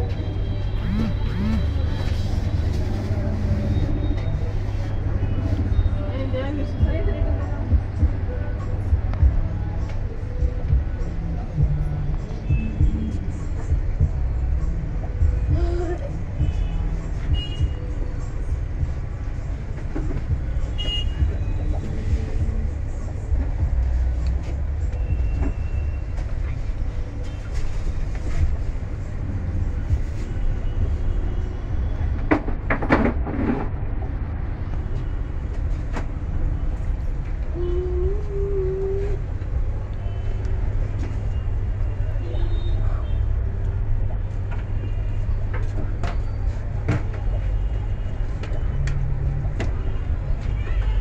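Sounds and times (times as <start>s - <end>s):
steady low rumble: 6.7s - 20.6s, 21.2s - 25.3s.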